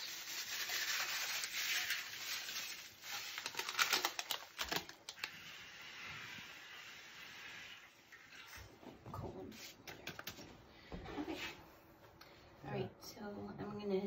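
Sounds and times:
plastic pouch crinkling: 0.0 - 5.3.

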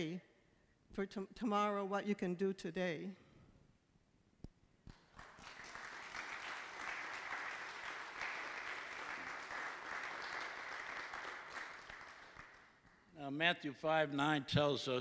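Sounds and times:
congregation applauding: 4.9 - 13.1.

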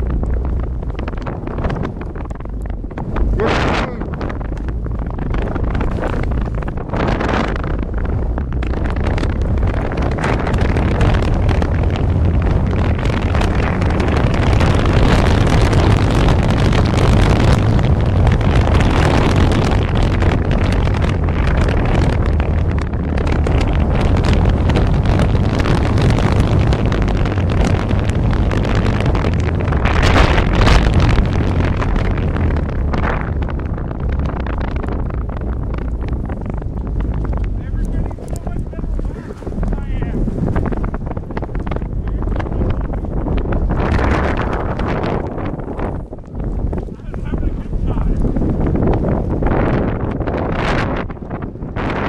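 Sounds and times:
wind buffeting microphone: 0.0 - 52.0
skis sliding over snow: 37.5 - 40.6.

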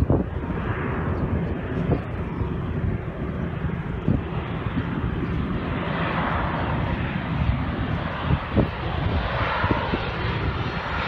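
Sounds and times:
jet airliner engine noise: 0.0 - 11.0
wind rumble on microphone: 0.0 - 11.0.

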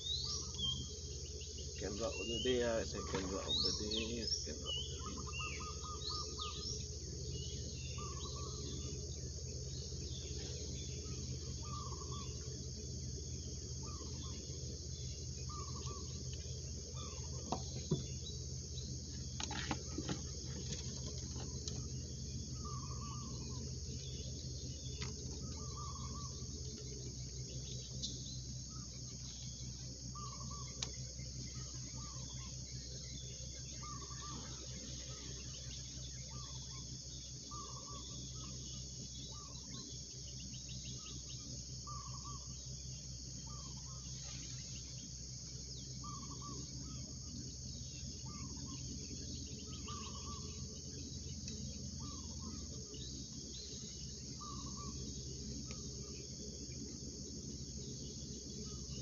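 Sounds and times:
insects chorus: 0.0 - 59.0.

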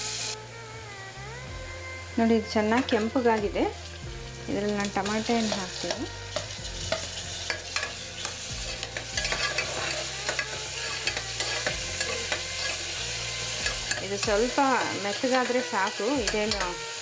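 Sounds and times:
food sizzling in oil: 0.0 - 17.0
metal spoon scraping and clinking: 4.6 - 16.9.

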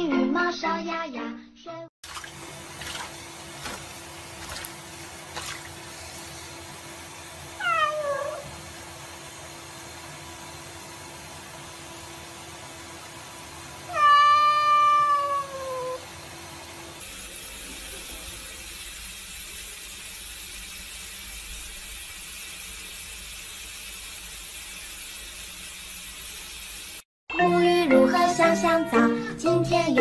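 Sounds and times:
tap running into sink: 2.1 - 6.4
cat meowing: 7.6 - 8.5, 13.9 - 16.0.

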